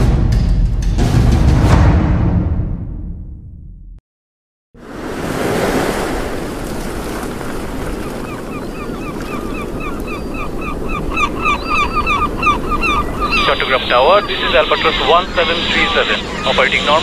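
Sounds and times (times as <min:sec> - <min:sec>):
sea waves: 0:04.8 - 0:17.0
wind: 0:04.8 - 0:17.0
seabirds crying: 0:04.9 - 0:17.0.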